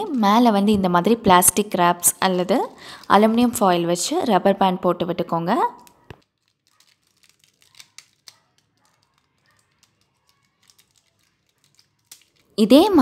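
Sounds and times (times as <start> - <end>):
aluminium foil crinkling: 5.6 - 13.0.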